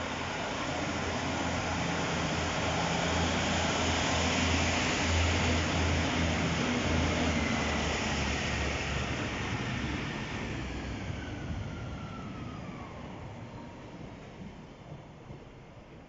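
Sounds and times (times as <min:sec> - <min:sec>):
diesel train engines throbbing: 0:00.0 - 0:15.8.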